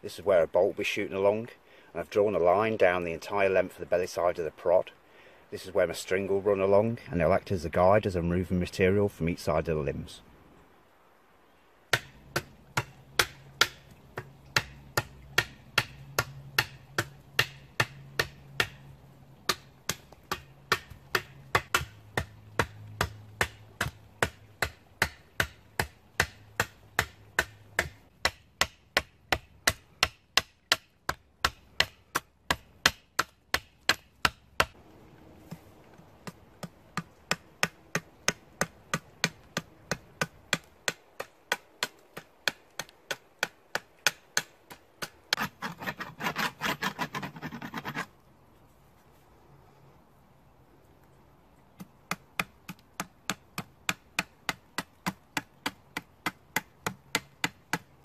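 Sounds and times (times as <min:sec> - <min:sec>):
knife chopping wood: 0:11.9 - 0:34.8, 0:36.2 - 0:48.0, 0:51.8 - 0:57.9.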